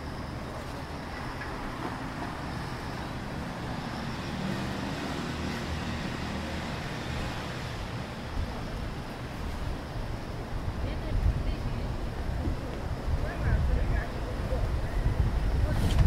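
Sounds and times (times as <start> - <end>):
engine sound: 0.0 - 10.5
road traffic hum: 0.0 - 16.0.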